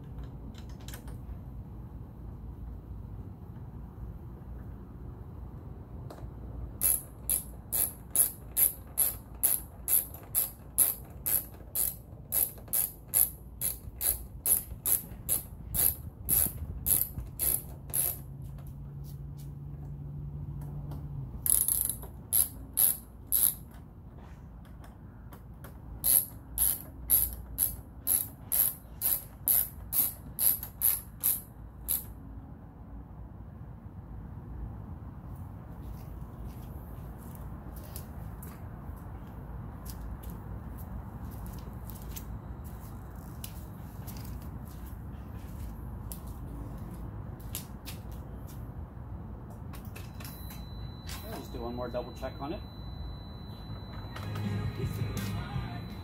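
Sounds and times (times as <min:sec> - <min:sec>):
hand ratchet clicking: 0:06.8 - 0:18.3, 0:21.4 - 0:23.8, 0:26.0 - 0:32.1.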